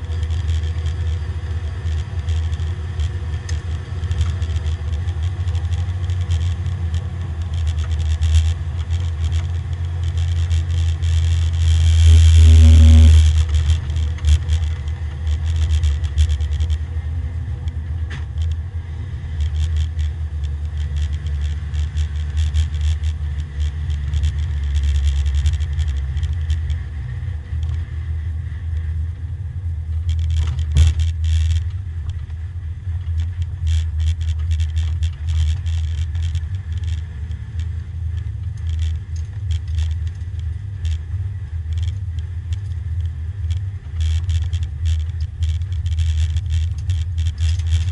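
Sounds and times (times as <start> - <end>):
loud clatter: 0.0 - 17.0, 29.9 - 47.9
small rattles and clicks: 0.0 - 29.2, 29.8 - 47.9
car engine running at low revs: 0.0 - 47.9.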